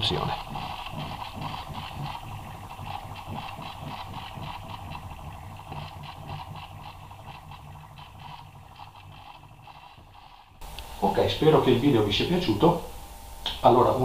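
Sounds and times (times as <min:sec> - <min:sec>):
gears ticking: 0:00.0 - 0:10.6
turntable motor humming: 0:00.0 - 0:14.0.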